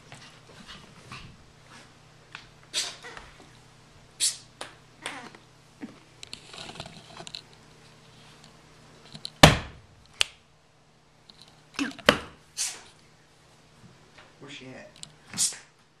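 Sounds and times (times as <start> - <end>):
loud thump: 9.4 - 9.9.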